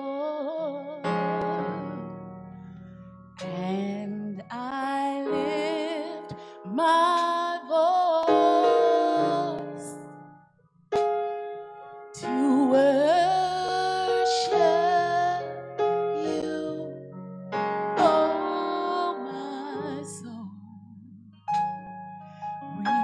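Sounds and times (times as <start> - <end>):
piano and keyboard chords: 0.0 - 23.0
woman singing with vibrato: 3.4 - 10.0, 12.2 - 15.5, 16.2 - 16.9, 18.0 - 20.9, 22.7 - 23.0.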